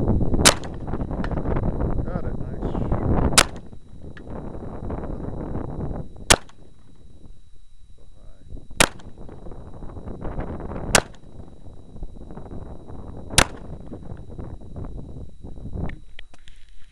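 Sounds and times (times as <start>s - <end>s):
pistol shots: 0.4s - 0.9s, 3.4s - 3.7s, 6.3s - 6.6s, 8.8s - 9.2s, 10.9s - 11.2s, 13.4s - 13.7s.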